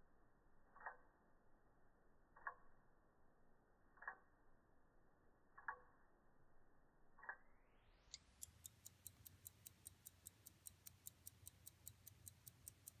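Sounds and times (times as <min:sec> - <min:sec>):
pocket watch ticking: 0:00.7 - 0:01.1, 0:02.3 - 0:02.8, 0:04.0 - 0:04.3, 0:05.6 - 0:05.9, 0:07.2 - 0:07.5, 0:08.1 - 0:13.0.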